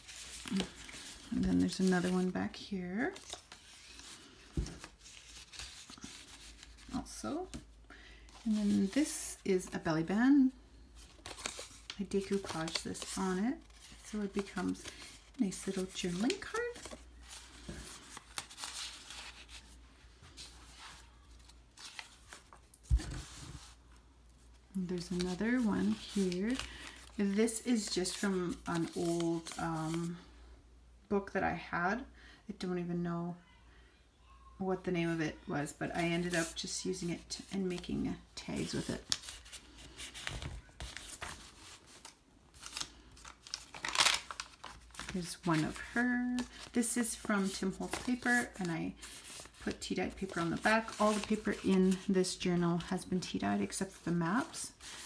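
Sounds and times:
page turning: 38.6s - 52.1s
paper rustling and sliding: 38.6s - 52.1s.

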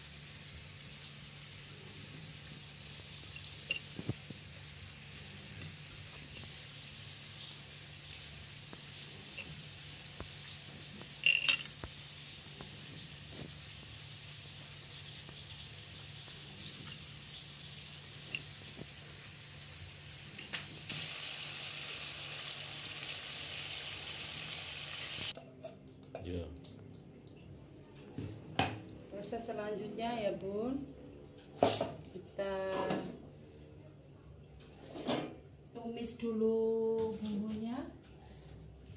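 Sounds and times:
oil sizzling in a pan: 0.0s - 25.4s.

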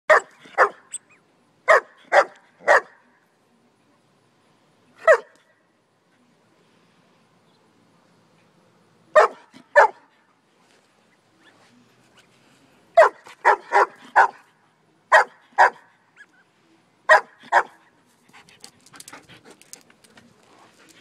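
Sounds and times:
dog barking: 0.1s - 0.9s, 1.7s - 3.0s, 5.0s - 5.4s, 9.2s - 10.0s, 13.0s - 14.4s, 15.1s - 15.9s, 17.1s - 17.8s.

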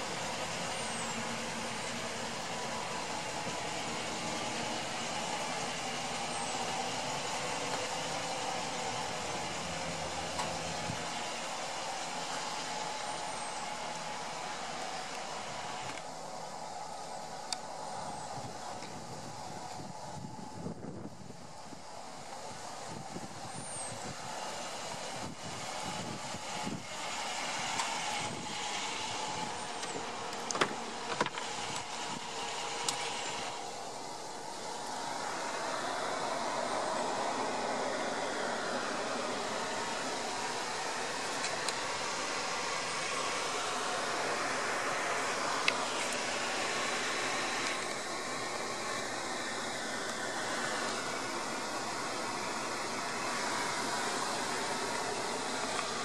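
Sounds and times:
steady background hiss: 0.0s - 56.0s
vehicle engine idling: 0.0s - 56.0s
car door unlatching clicks: 29.9s - 31.9s.

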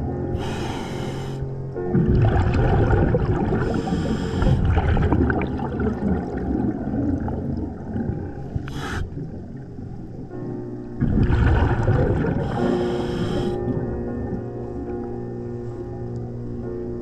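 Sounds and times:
regulator inhalation hiss: 0.4s - 1.5s, 3.7s - 4.7s, 8.7s - 9.2s, 12.4s - 13.6s
gurgling exhaled bubbles: 1.8s - 14.9s.

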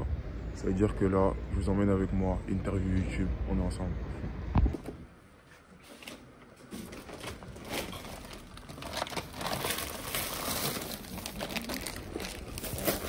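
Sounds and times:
plastic bag rustling: 6.7s - 13.0s.

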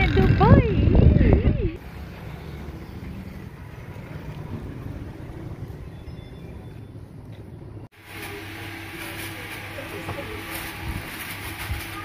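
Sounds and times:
wind buffeting microphone: 0.0s - 7.7s.

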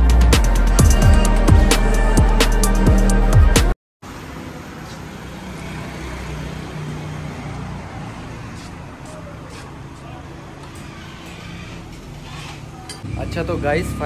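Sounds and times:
road noise: 4.0s - 14.0s.

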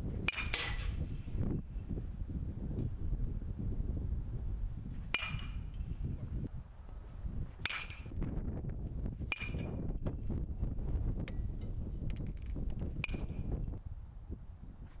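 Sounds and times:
wind on microphone: 0.0s - 15.0s
bat pinging on balls: 5.2s - 5.7s, 7.6s - 8.1s, 9.3s - 9.9s.

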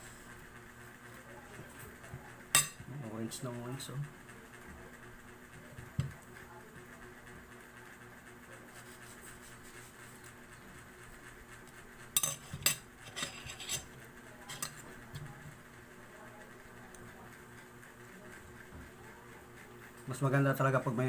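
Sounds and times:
spoon scraping a plate: 12.2s - 14.9s.

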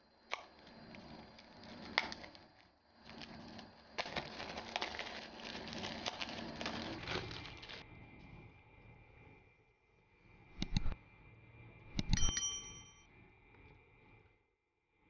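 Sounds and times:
plastic wrap crinkling: 0.4s - 7.8s
sharp click: 10.6s - 11.0s, 12.0s - 12.4s.

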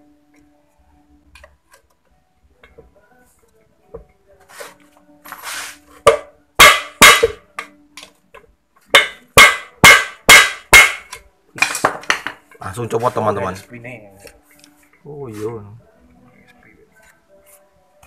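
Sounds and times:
hammer striking steel bar: 6.1s - 7.7s, 8.9s - 12.2s.

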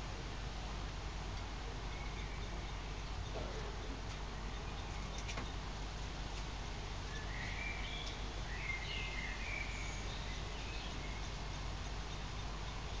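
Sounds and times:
background hiss: 0.0s - 13.0s
bird chirps and twitters: 7.1s - 13.0s.

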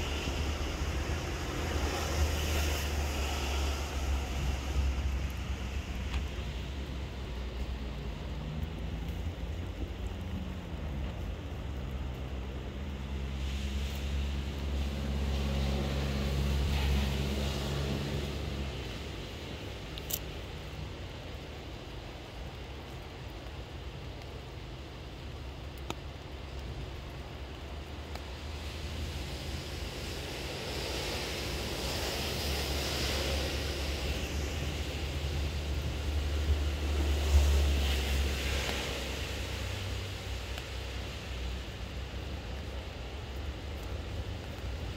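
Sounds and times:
low engine hum: 0.0s - 22.6s
steady hiss: 0.0s - 44.9s.

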